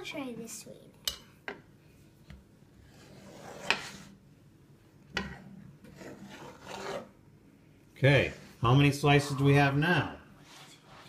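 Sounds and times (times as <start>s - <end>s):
knife scraping metal pan: 2.9s - 4.1s, 5.2s - 7.1s.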